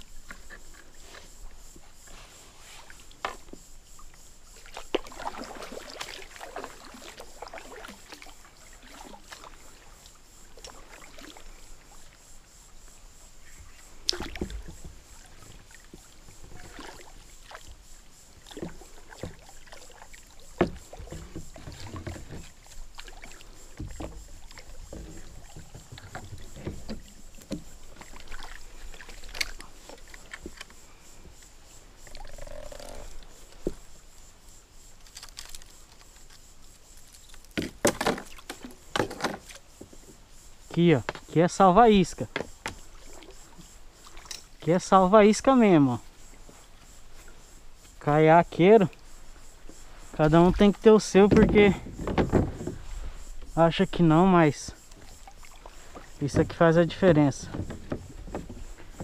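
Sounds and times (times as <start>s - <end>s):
water splashing around kayak: 0.0s - 59.0s
sharp knocks: 51.3s - 52.8s.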